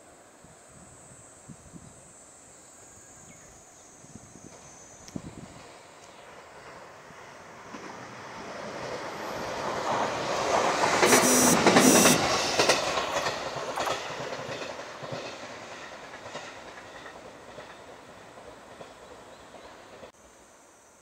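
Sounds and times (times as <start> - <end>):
train wheels clattering on rails: 4.4 - 20.2.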